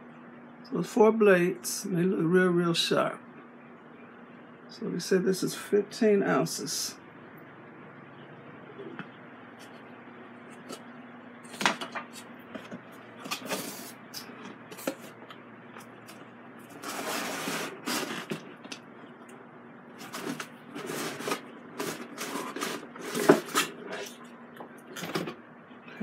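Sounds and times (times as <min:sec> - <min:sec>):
cardboard scraping and rustling: 0:16.7 - 0:18.4, 0:20.0 - 0:24.1.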